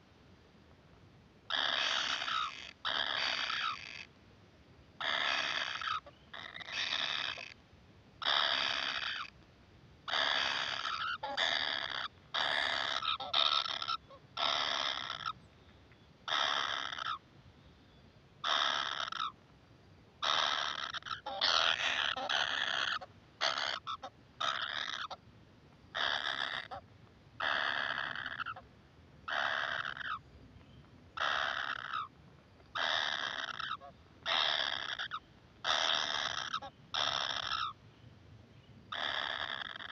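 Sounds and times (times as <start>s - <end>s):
nestlings harsh begging calls: 1.5s - 4.1s, 5.0s - 7.6s, 8.2s - 9.3s, 10.1s - 15.4s, 16.3s - 17.2s, 18.4s - 19.4s, 20.2s - 25.2s, 26.0s - 26.8s, 27.4s - 28.6s, 29.3s - 30.2s, 31.2s - 32.1s, 32.7s - 37.8s, 38.9s - 39.9s.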